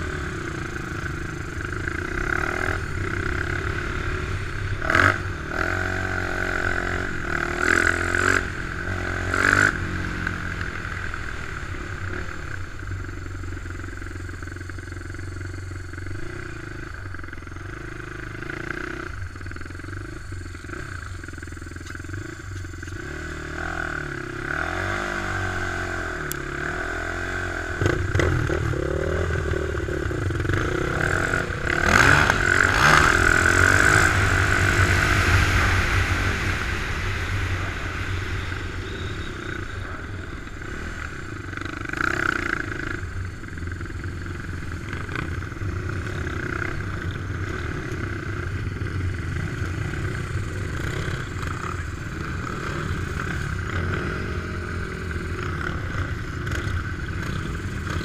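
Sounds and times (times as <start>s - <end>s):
atv engine revving: 0.0s - 58.0s.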